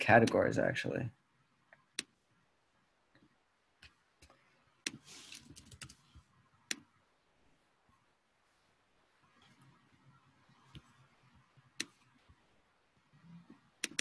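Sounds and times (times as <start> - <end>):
computer clicks: 3.8 - 6.0, 13.8 - 14.0
laptop keyboard typing: 3.8 - 6.0, 13.8 - 14.0.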